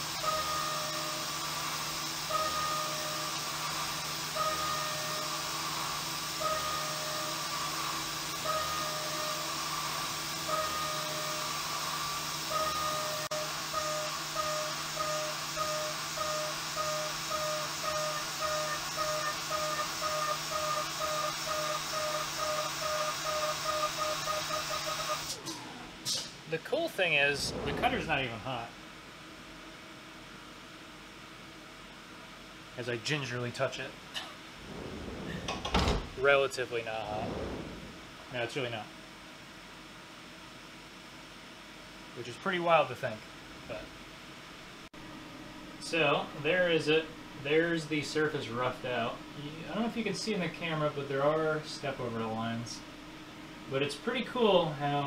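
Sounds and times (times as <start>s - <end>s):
air hissing over running spindle: 0.0s - 25.4s.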